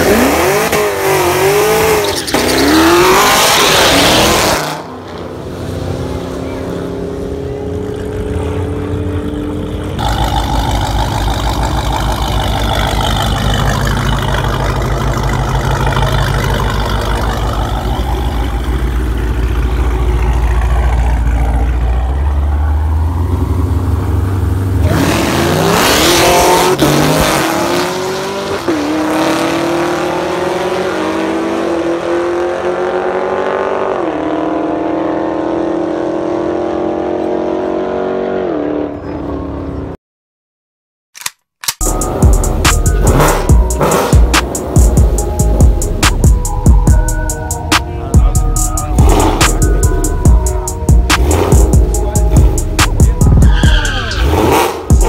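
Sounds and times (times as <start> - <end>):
race car accelerating away: 0.0 - 40.0, 41.9 - 55.0
heavy car engine idling: 9.8 - 24.8, 41.8 - 54.3.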